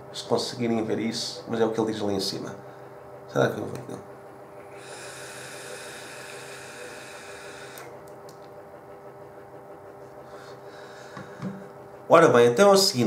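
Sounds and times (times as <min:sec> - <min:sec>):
airy hiss of vape draw: 0:04.7 - 0:08.0.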